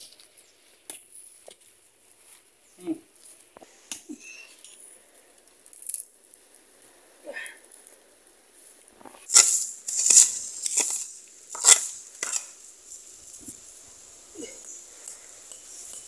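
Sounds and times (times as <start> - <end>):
machete chopping roots: 9.3 - 12.5.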